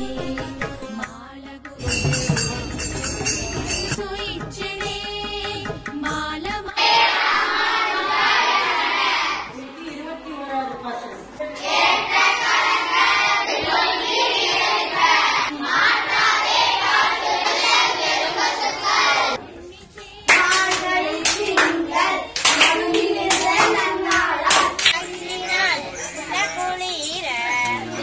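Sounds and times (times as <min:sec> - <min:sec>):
children singing: 0:06.7 - 0:09.6, 0:11.5 - 0:26.6, 0:27.6 - 0:28.0
girls chanting in unison: 0:06.8 - 0:09.6, 0:11.5 - 0:19.4, 0:20.1 - 0:25.6
rhythmic hand clapping: 0:20.3 - 0:25.7.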